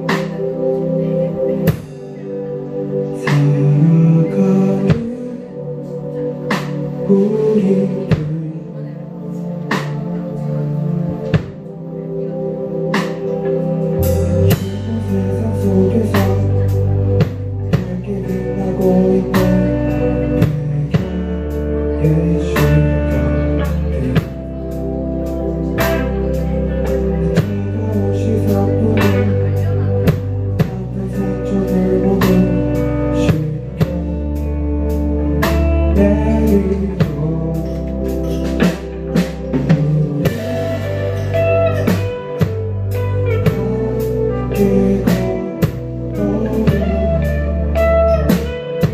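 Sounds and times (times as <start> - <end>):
drum kit beat: 0.0 - 0.8, 1.6 - 2.2, 11.2 - 11.7, 12.9 - 48.9
electric bass: 0.0 - 48.9
electric guitars: 0.0 - 48.9.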